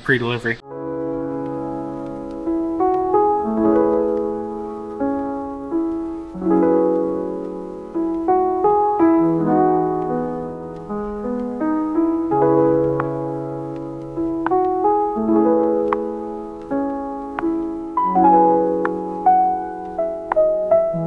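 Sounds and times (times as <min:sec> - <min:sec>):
background piano music: 0:00.6 - 0:21.0.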